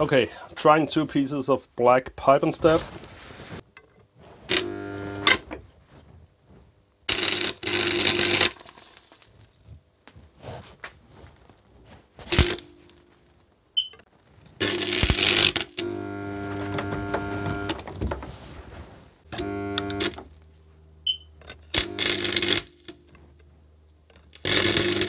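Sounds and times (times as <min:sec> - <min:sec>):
welding arc crackling: 0:07.1 - 0:09.5, 0:12.3 - 0:13.0, 0:14.6 - 0:17.8, 0:19.3 - 0:20.3, 0:21.7 - 0:23.1, 0:24.3 - 0:25.0.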